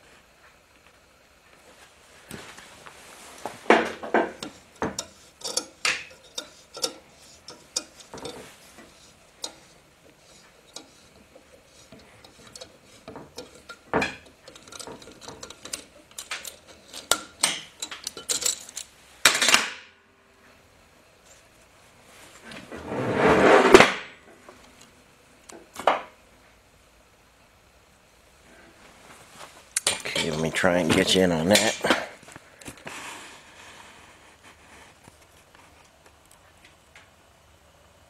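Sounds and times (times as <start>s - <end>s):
metallic clicks and clanks: 3.7s - 19.8s.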